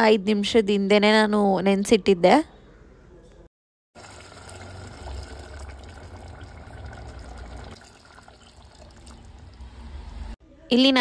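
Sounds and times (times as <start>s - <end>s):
pressure cooker liquid bubbling: 4.0s - 9.9s.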